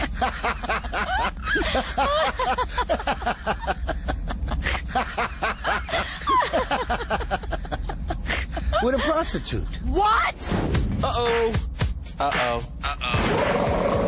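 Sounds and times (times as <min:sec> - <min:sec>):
people laughing: 0:00.0 - 0:09.8.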